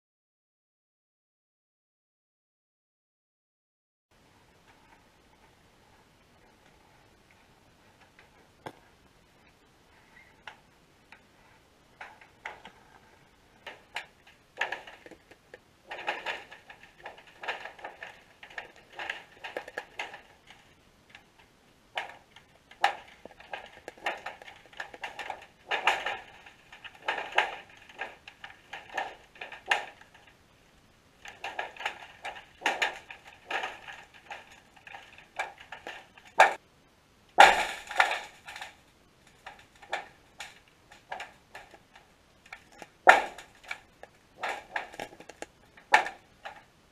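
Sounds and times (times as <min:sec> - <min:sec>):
underwater clicking and knocking: 0:22.0 - 0:30.4.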